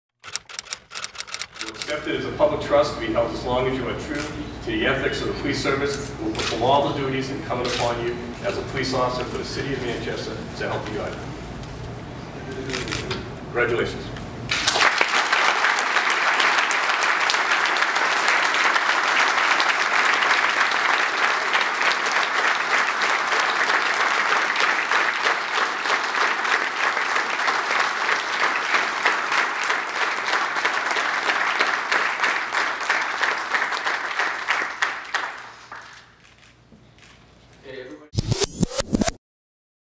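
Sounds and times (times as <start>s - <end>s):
audience applauding: 14.5s - 36.2s.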